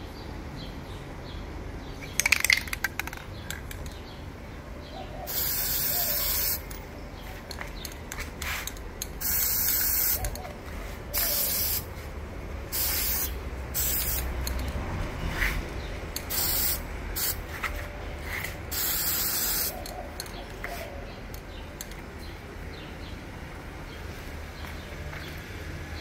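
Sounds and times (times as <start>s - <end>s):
spray-paint can hissing: 5.3s - 6.7s, 8.4s - 10.4s, 11.2s - 11.9s, 12.7s - 14.7s, 16.2s - 17.5s, 18.2s - 20.0s.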